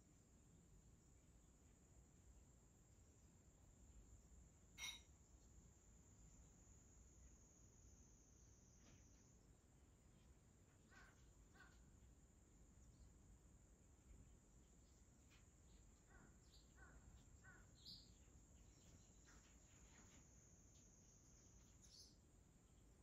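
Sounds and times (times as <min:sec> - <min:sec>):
faint bird calls: 0:10.7 - 0:12.0, 0:15.7 - 0:20.8
high bird chirp: 0:16.1 - 0:19.5, 0:21.6 - 0:22.2.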